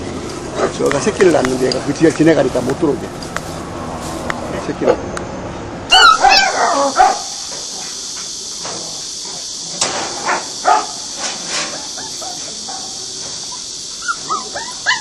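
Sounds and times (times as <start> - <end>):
steady high hiss: 0.0 - 15.0
dogs barking: 5.9 - 8.0, 10.2 - 11.1, 11.7 - 15.0.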